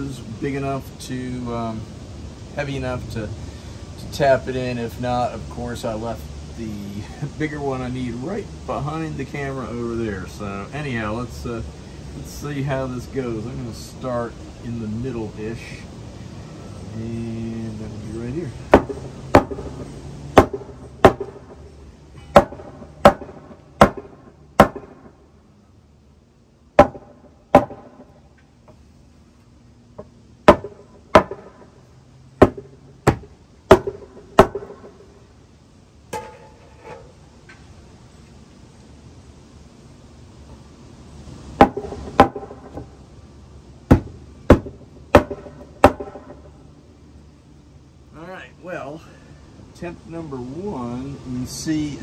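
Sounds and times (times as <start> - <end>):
hammer striking wooden board: 18.7 - 19.7, 20.4 - 21.6, 22.3 - 25.1, 26.8 - 28.1, 30.5 - 31.7, 32.4 - 35.0, 41.6 - 42.9, 43.9 - 46.4.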